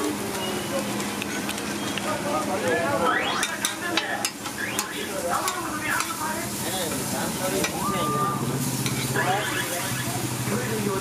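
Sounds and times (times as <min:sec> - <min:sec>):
food sizzling in oil: 0:00.0 - 0:11.0
metal spatula scraping griddle: 0:08.6 - 0:09.8.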